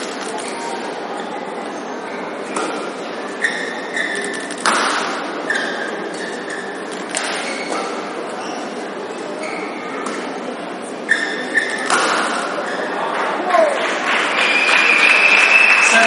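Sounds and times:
crowd murmur: 0:00.0 - 0:16.0
shoe squeaks on court: 0:01.8 - 0:13.0
racket hitting shuttlecock: 0:04.6 - 0:06.3, 0:10.0 - 0:10.3, 0:11.6 - 0:12.9.

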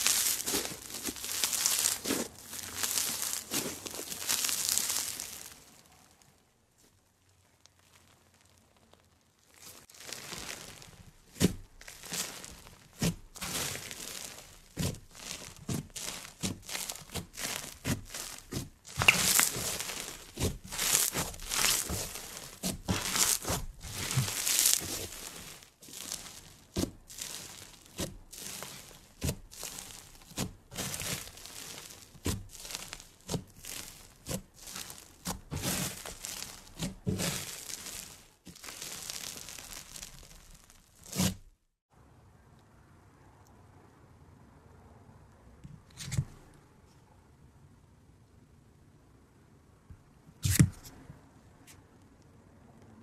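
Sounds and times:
slime crackling and squishing: 0:00.0 - 0:41.6.

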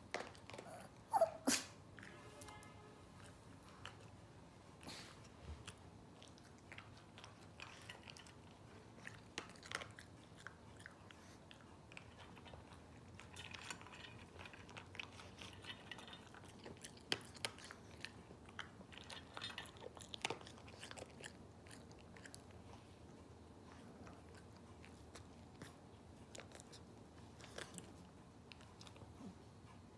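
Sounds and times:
dog crunching dry kibble: 0:06.1 - 0:22.5.

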